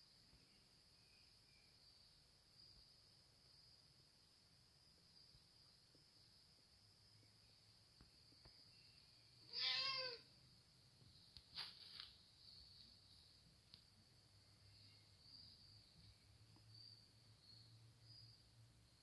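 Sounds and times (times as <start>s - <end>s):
cat meowing: 9.5s - 10.3s.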